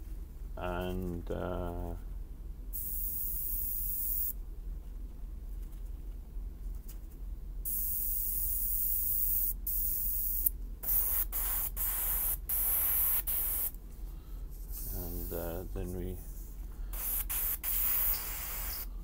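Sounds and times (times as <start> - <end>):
airbrush hissing air bursts: 2.8 - 4.4, 7.6 - 13.7, 16.9 - 19.0.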